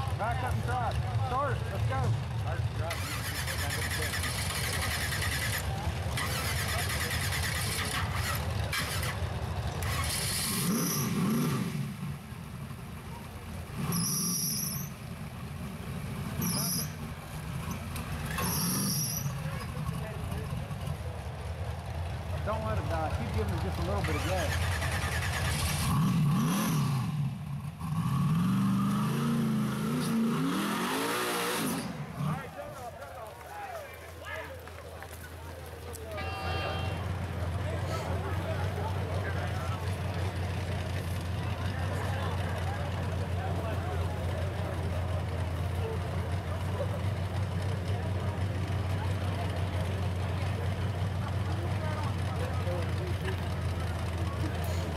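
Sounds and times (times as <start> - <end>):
engine revving high: 2.8 - 9.2, 9.8 - 12.0, 24.0 - 32.5.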